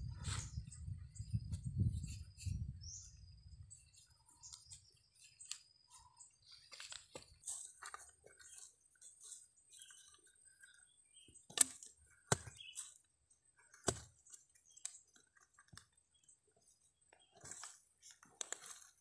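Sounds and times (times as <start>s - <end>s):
soil crumbling and scratching: 3.9s - 19.0s
knife chopping into clay soil: 11.5s - 13.0s, 13.8s - 14.2s.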